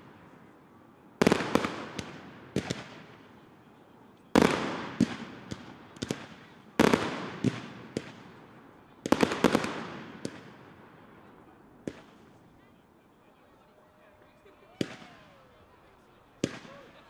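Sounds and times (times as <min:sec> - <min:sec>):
fireworks heavy bangs with rumble: 0:01.2 - 0:03.4, 0:04.3 - 0:11.1
fireworks sharp cracks: 0:01.2 - 0:03.7, 0:04.3 - 0:12.4, 0:14.8 - 0:15.2, 0:16.4 - 0:16.8.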